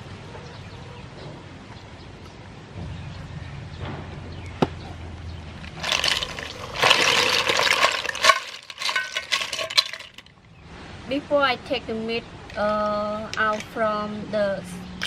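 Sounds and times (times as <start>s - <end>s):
shells clattering in a basket: 5.6s - 10.4s, 13.3s - 13.8s.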